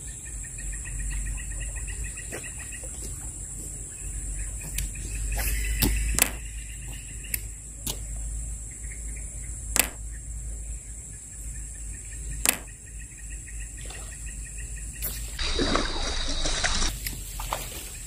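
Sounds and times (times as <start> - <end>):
insects buzzing: 0.0 - 18.0
fast pulsing chirp: 4.0 - 7.6
sharp clicks: 5.8 - 6.5, 9.8 - 10.0, 12.4 - 12.8.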